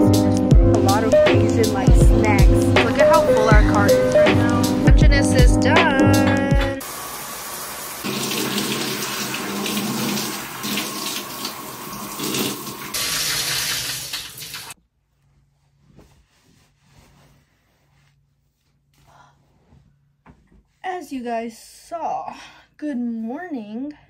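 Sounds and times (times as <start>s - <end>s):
shower running: 6.6s - 14.8s.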